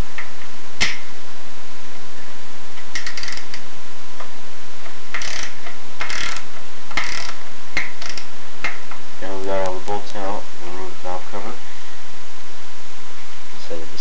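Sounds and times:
socket ratchet clicking: 2.9s - 3.6s, 5.1s - 8.8s.

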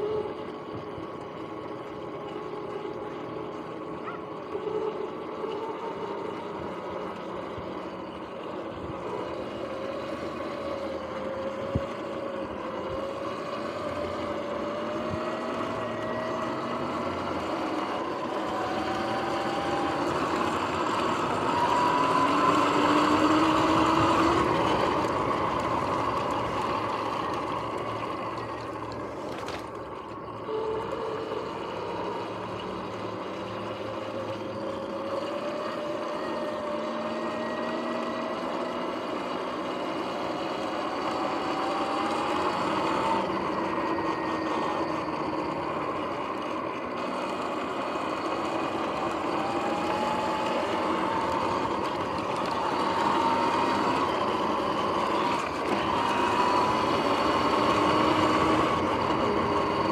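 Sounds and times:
electric motor whine: 0.0s - 59.9s
wind and tyre rush: 32.8s - 59.9s.

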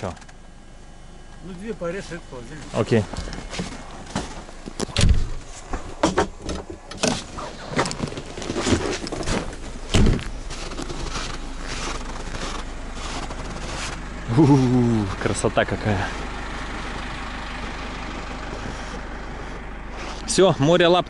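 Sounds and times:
engine running: 0.0s - 21.0s
knocks and scrapes on vehicle body: 3.0s - 14.0s.

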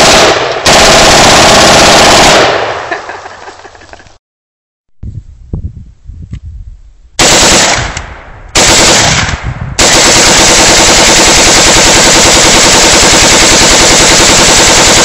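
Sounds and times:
rapid rifle shots: 0.0s - 2.9s, 7.2s - 15.0s.

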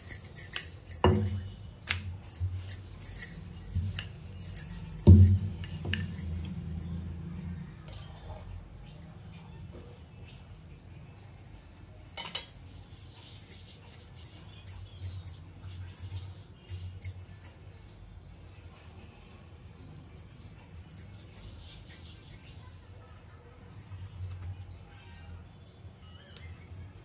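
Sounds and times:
metal bangles clinking: 0.0s - 7.2s, 8.0s - 9.3s, 10.7s - 27.0s
palm rubbing dough: 19.2s - 22.5s.

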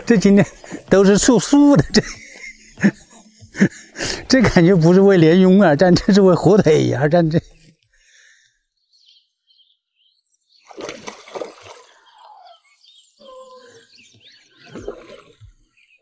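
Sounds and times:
fish splashing in water: 10.6s - 12.1s, 14.6s - 15.7s.

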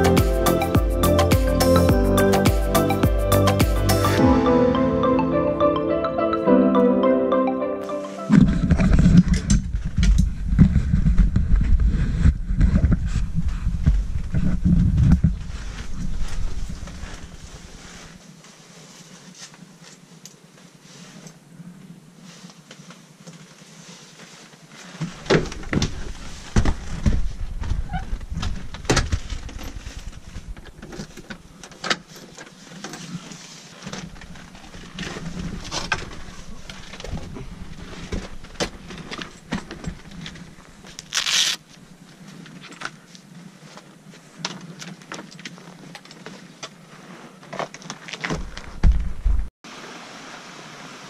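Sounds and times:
ski gear clicks and rustles: 8.3s - 21.5s, 22.3s - 49.4s
low rumble on microphone: 8.4s - 18.2s.

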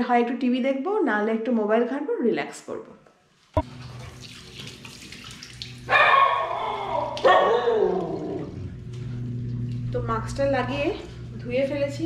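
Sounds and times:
water splashing in a basin: 3.6s - 8.6s
dog barking loudly: 5.9s - 8.0s.

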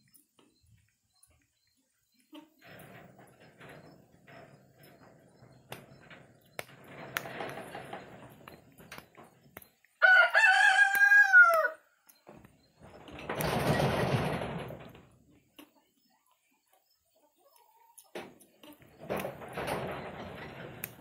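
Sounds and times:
rustling and small clicks: 2.6s - 10.0s, 18.0s - 21.0s
rooster crowing: 10.0s - 11.8s.

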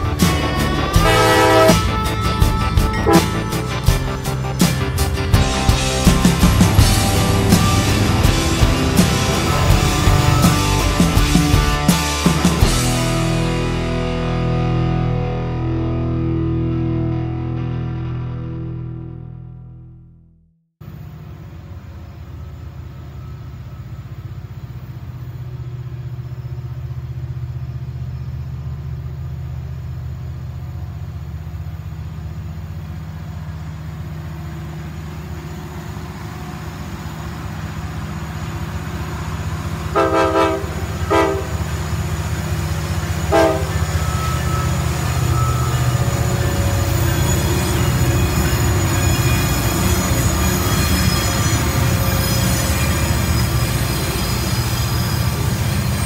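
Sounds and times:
passing train noise: 0.0s - 15.1s, 20.8s - 56.0s
locomotive engine rumble: 0.0s - 17.8s, 20.8s - 56.0s
train horn: 0.7s - 4.0s, 39.9s - 41.8s, 43.2s - 46.0s.

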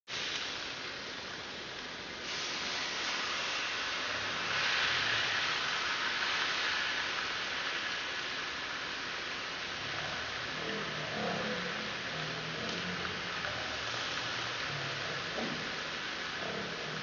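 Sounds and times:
fish sizzling in a grill pan: 2.2s - 8.3s.

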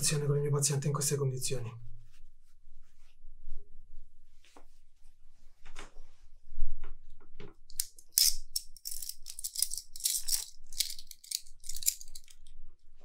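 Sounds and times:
handcuff chain rattling: 7.8s - 12.5s.

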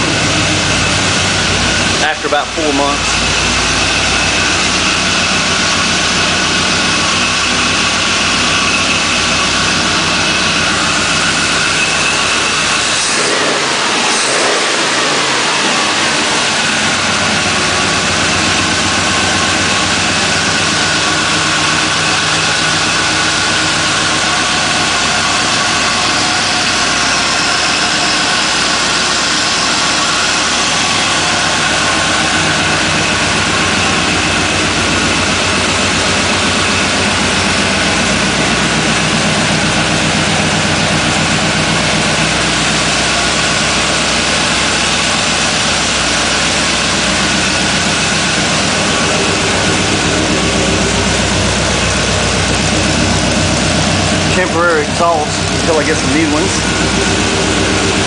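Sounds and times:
engine running: 0.0s - 58.0s.

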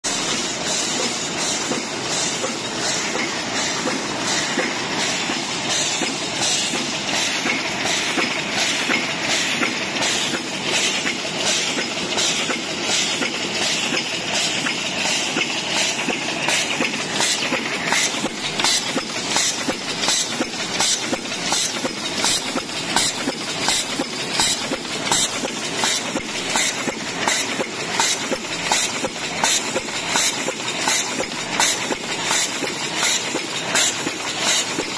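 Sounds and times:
machine clattering rhythmically: 0.0s - 34.9s.

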